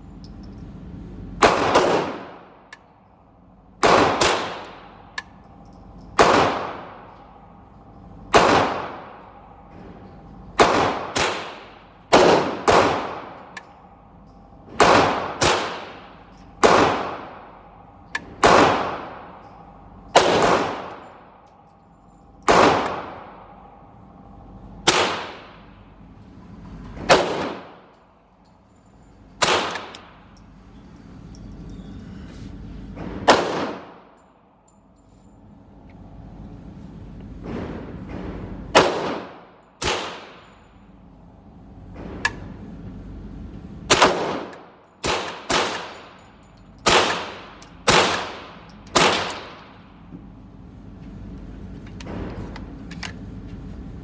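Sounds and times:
rifle shots with ringing echo: 1.4 - 21.4, 22.4 - 23.8, 24.8 - 25.8, 27.0 - 28.2, 29.4 - 30.4, 33.0 - 34.2, 37.4 - 40.7, 43.9 - 50.0.

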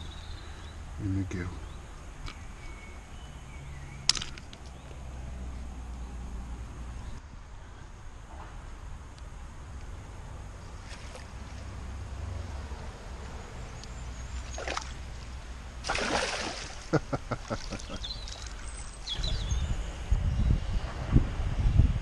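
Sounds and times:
water splashing: 10.8 - 11.8, 14.3 - 19.0
water dripping and trickling: 17.7 - 19.2
wind rumble on microphone: 19.0 - 22.0.

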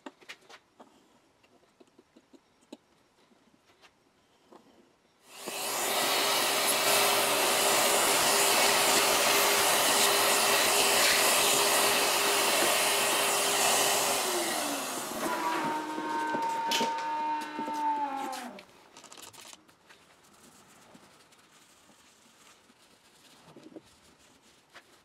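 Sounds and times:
vacuum cleaner running: 5.3 - 18.6.

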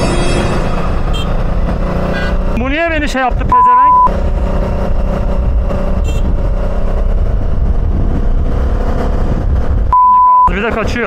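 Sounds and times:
motorcycle engine running: 0.7 - 3.4
wind rumble on microphone: 2.4 - 11.0.

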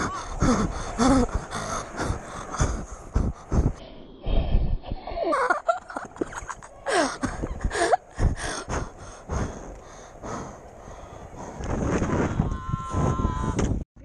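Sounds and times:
wind buffeting microphone: 0.0 - 14.0
skateboard wheels rolling: 9.6 - 13.8.

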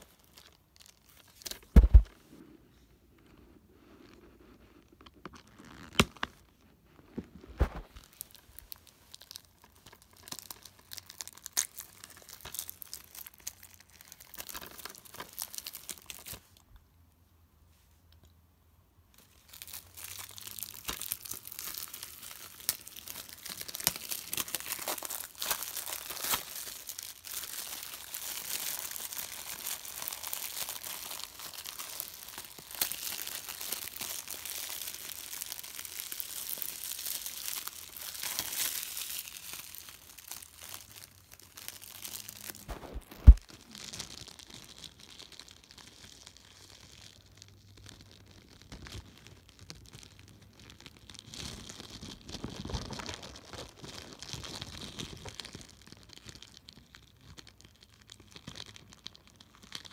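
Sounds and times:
plastic wrap crinkling: 0.0 - 2.1, 3.9 - 16.6, 19.2 - 59.9
sharp loud thump: 1.7 - 2.1.

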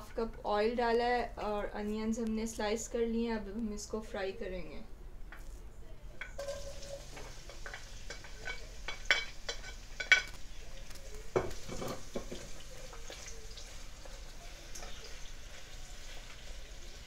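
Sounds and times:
onions sizzling in hot oil: 6.3 - 17.0
knocks against a pot: 11.3 - 12.6.

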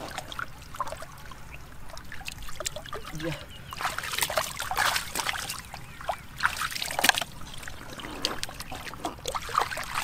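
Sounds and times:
water dripping: 0.0 - 10.0
wet squelches: 0.0 - 10.0
hands splashing in muddy water: 3.8 - 7.3, 8.7 - 10.0.

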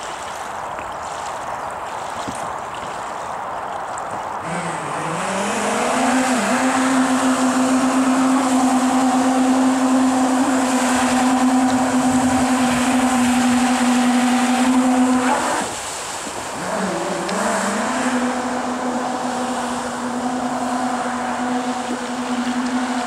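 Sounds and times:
water rushing from jet: 0.0 - 23.0.

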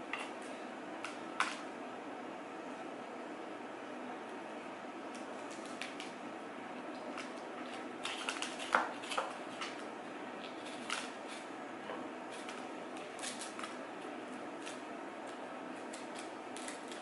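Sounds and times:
knife cutting pepper crunches: 12.3 - 17.0.

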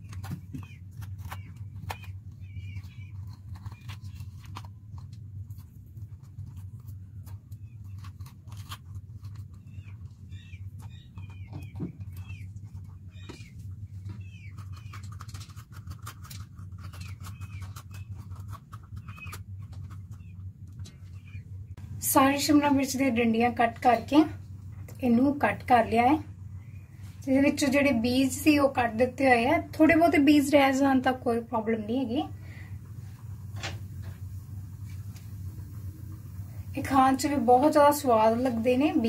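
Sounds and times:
chirping squeaks: 0.0 - 4.5, 9.3 - 21.5
knife cutting peppers: 0.0 - 9.8, 14.4 - 20.2
low hum: 0.0 - 39.0.

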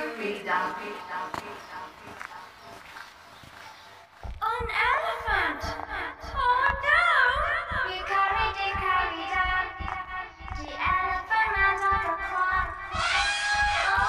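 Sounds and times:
layered pitch-warped children's song: 4.4 - 14.0.

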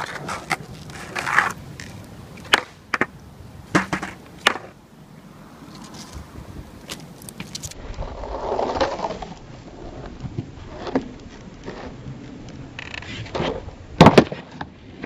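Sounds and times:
skateboard tail popping: 0.0 - 4.8, 13.2 - 14.7
skateboard rolling on asphalt: 0.0 - 15.0
skateboard landing smacks: 2.4 - 4.8, 14.0 - 14.7.

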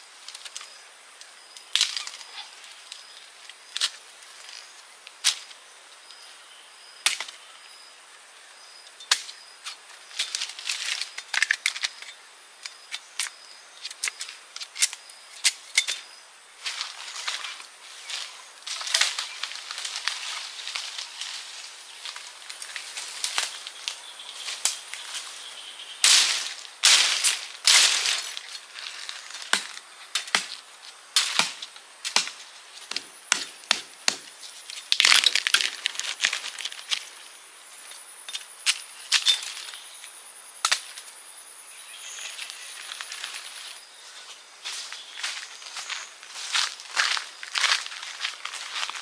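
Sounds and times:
twigs snapping: 9.1 - 12.2, 16.6 - 25.3, 26.0 - 37.1
footsteps crunching dry leaves: 16.6 - 37.3, 41.8 - 49.0.

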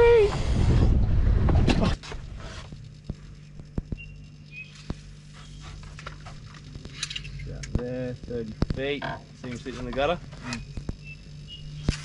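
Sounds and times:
wind rushing over microphone: 0.0 - 2.0
quiet low hum: 0.0 - 12.0.

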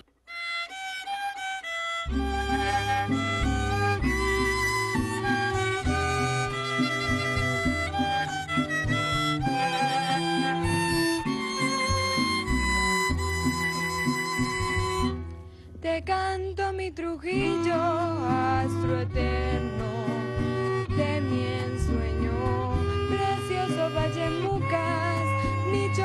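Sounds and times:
string ensemble playing a waltz: 0.5 - 15.4, 17.3 - 26.0
woman singing: 9.4 - 10.8, 15.8 - 26.0.

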